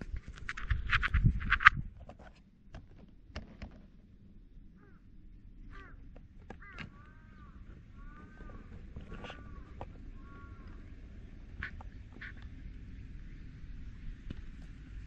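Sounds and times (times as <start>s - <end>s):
sharp clatter: 0.0s - 2.2s
bird calling: 4.8s - 13.2s.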